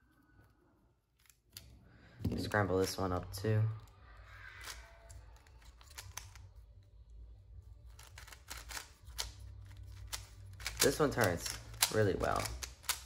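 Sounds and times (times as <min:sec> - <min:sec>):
puzzle cube clicking: 0:05.4 - 0:06.5, 0:07.9 - 0:13.0.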